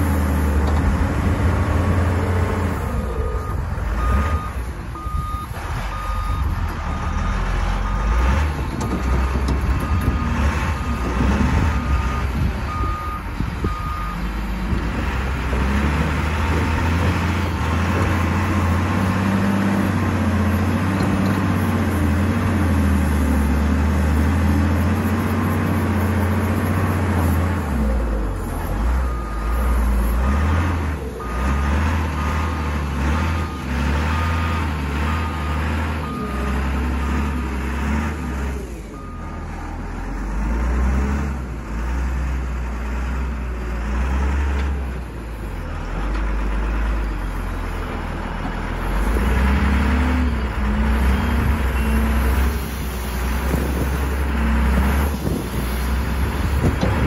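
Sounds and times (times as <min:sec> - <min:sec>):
diesel engine revving: 0:00.0 - 0:57.0
reversing alarm beeps: 0:03.1 - 0:08.2, 0:09.8 - 0:14.3, 0:51.0 - 0:52.5.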